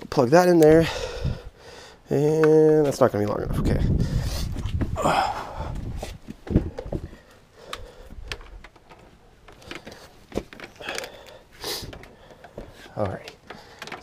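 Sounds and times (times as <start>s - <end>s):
cable handling rustling: 6.0s - 14.0s.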